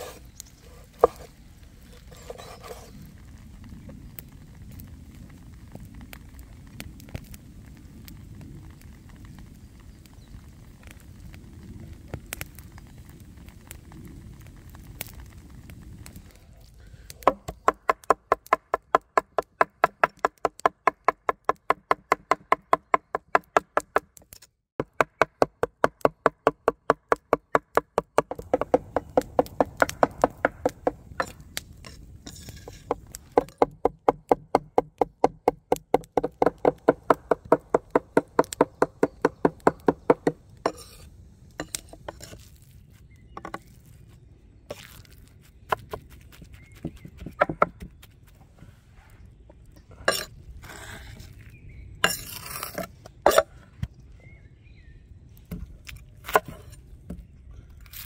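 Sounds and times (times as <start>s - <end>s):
knife chopping on wooden board: 26.8s - 31.4s, 45.7s - 47.9s.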